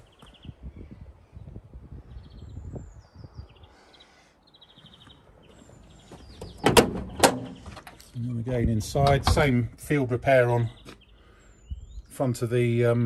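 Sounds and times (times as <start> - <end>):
birds chirping: 0.0 - 13.0
car door latch clicks: 6.4 - 7.9.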